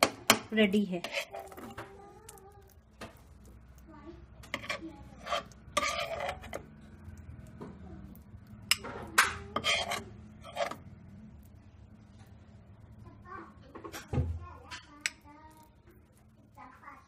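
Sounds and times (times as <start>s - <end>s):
metal spoon scraping a pan: 0.0s - 12.4s, 13.8s - 16.6s.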